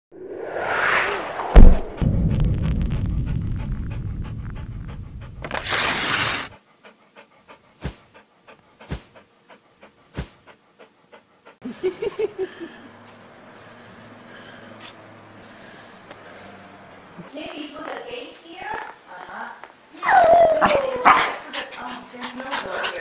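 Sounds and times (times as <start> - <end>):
low rumble: 0.1 - 5.5
whoosh: 0.1 - 6.5
loud hit: 0.6 - 5.4
soft low thumps: 1.5 - 5.4
dog panting: 3.3 - 5.5, 6.3 - 13.0, 21.2 - 23.0.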